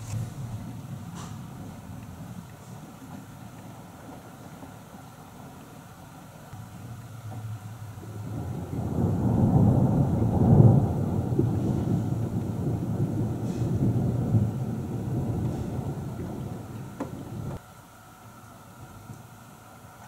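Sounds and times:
rolling thunder: 0.0 - 2.5, 7.4 - 17.6.

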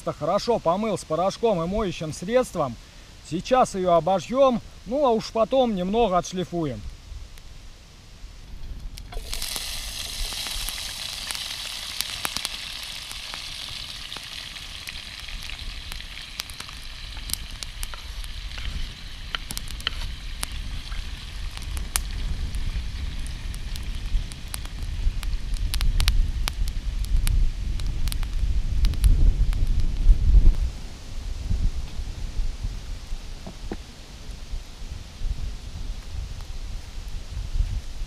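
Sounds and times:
fire crackling: 0.0 - 38.0
wind rumble on microphone: 6.6 - 10.8, 14.8 - 38.0
metal sizzling hiss: 9.1 - 21.1.

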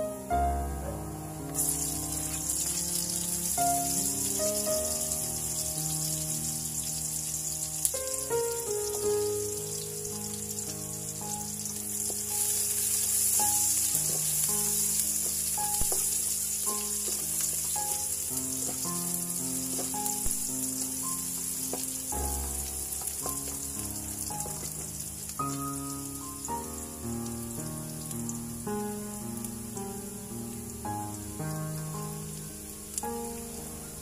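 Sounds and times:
onion sizzling in hot oil: 0.1 - 34.0
spatula knocking wok: 11.6 - 20.3.

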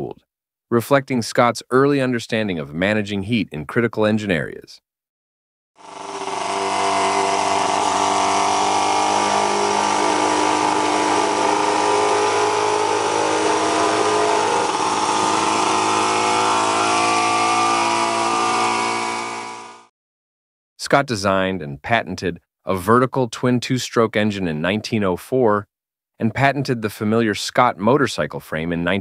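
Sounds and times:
two-stroke motorcycle engine running: 5.8 - 19.9.

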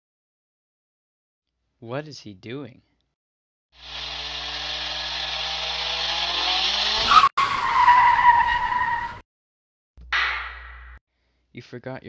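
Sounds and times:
car engine revving: 3.8 - 7.3
tyre screech: 6.8 - 9.2.

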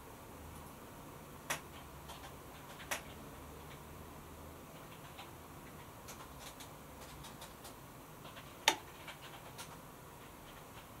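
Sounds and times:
faint irregular ticks: 4.7 - 11.0.

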